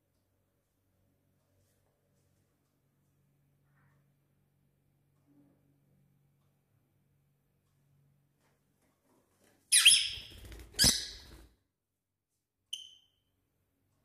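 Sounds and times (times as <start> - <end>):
parrot high chirp: 9.7 - 11.4, 12.7 - 13.2
parrot squawking: 9.8 - 11.3.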